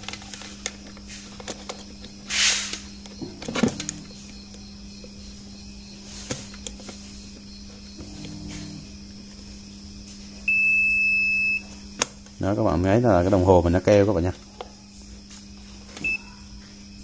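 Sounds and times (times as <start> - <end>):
test probes rustling: 0.0 - 10.6
steady low hum: 0.0 - 17.0.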